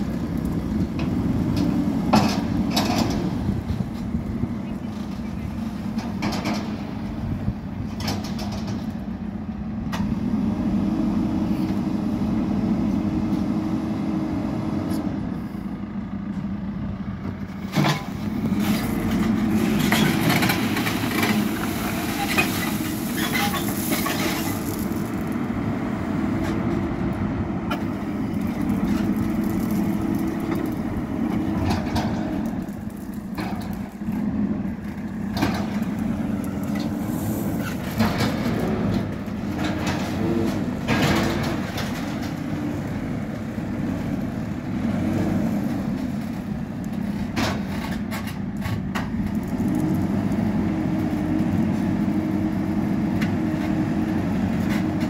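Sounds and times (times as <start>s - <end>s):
diesel engine revving: 9.7s - 47.2s
gravel scraping and rattling: 17.2s - 55.0s.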